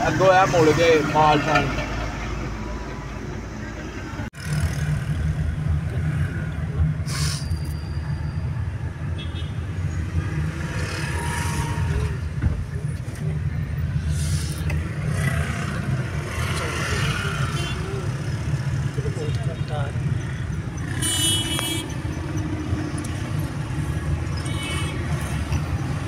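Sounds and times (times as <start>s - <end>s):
engine and tyre rumble: 0.0s - 26.0s.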